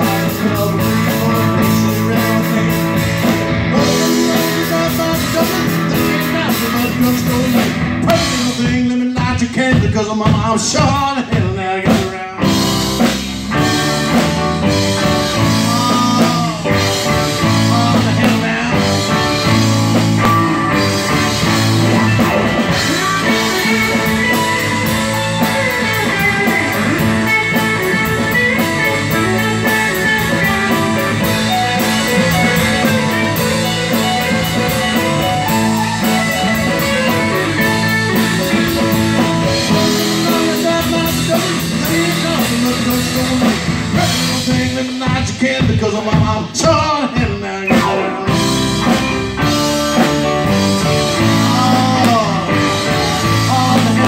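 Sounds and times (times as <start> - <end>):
drum kit beat: 0.0 - 54.0
electric guitar: 0.0 - 54.0
live rock band playing: 0.0 - 54.0.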